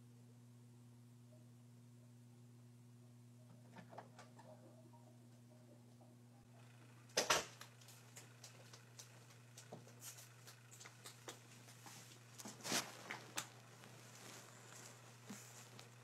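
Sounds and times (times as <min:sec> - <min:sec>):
steady low hum: 0:00.0 - 0:16.0
rustling: 0:07.6 - 0:16.0.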